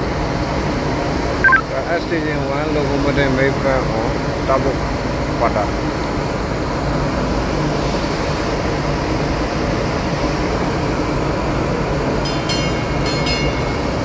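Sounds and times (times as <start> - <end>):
electric locomotive rumble: 0.0 - 14.0
high-pitched ringing tones: 1.4 - 1.7.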